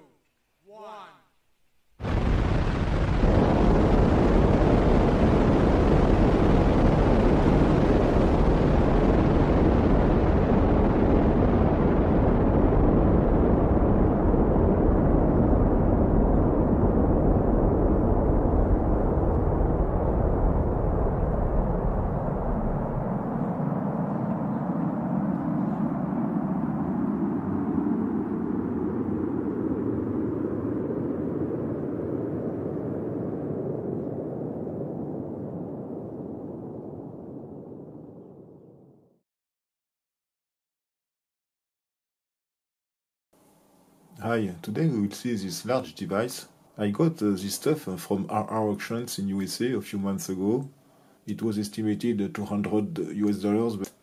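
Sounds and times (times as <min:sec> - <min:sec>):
rocket exhaust roar: 0:02.0 - 0:39.2.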